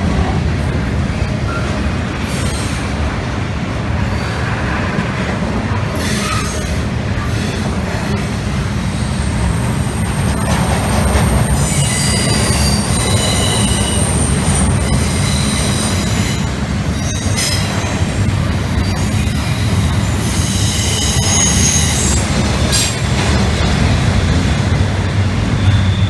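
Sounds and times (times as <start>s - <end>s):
train wagons rumbling: 0.0s - 26.0s
high wheel squeal: 6.0s - 7.6s, 11.6s - 18.1s, 18.8s - 23.0s, 25.5s - 26.0s.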